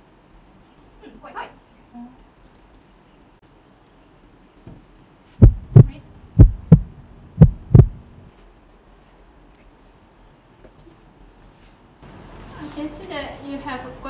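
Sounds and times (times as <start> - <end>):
heartbeat through stethoscope: 5.4 - 8.2.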